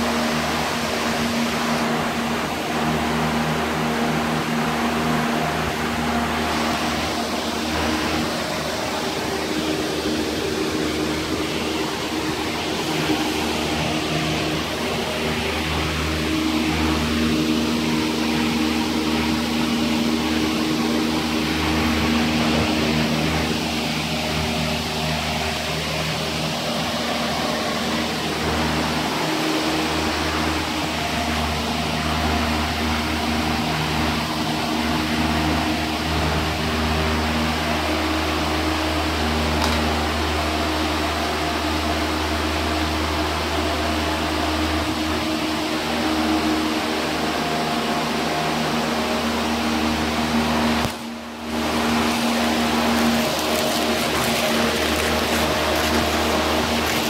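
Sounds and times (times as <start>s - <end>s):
small motor humming: 50.6s - 57.0s.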